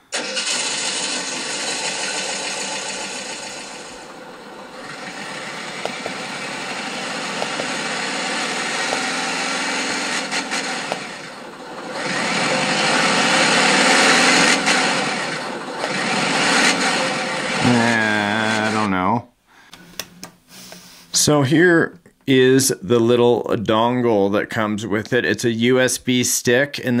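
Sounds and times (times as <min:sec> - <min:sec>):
engine revving: 0:00.0 - 0:18.9
engine sound played through speakers: 0:00.0 - 0:18.9.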